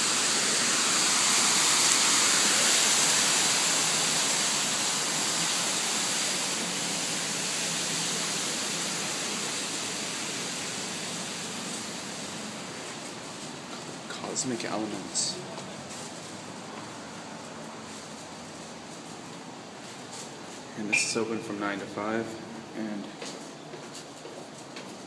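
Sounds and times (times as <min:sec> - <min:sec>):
fountain water rushing: 0:00.0 - 0:19.7.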